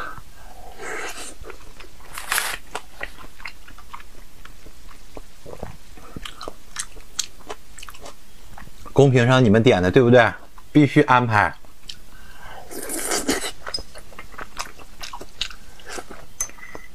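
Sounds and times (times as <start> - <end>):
close chewing with mouth smacks: 1.2 - 9.0, 12.7 - 16.9.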